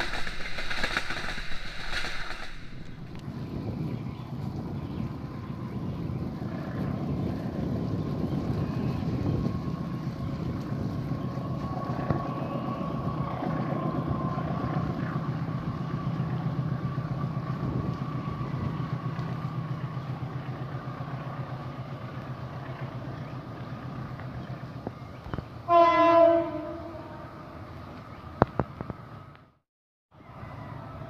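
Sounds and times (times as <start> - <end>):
diesel locomotive rumble: 0.0 - 29.6
train horn blast: 25.6 - 27.6.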